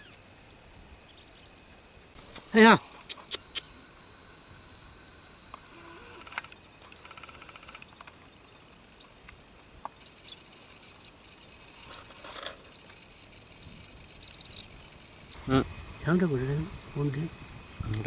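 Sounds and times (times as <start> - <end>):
birds calling: 0.0 - 18.0
faint outdoor ambience: 0.0 - 18.0
buzzy chattering rattle: 5.6 - 8.2, 10.0 - 18.0
high bird chirps: 13.6 - 15.4.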